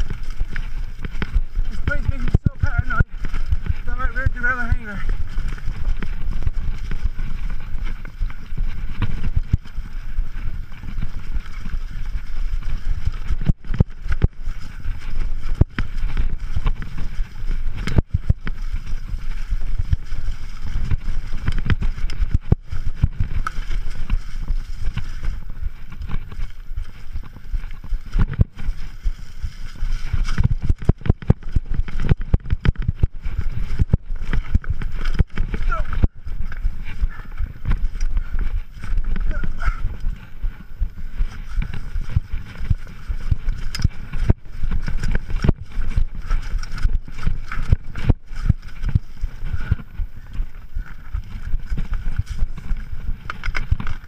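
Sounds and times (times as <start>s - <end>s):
bike rumbling on rocky trail: 0.0s - 54.0s
bike knocks and rattles: 41.2s - 54.0s.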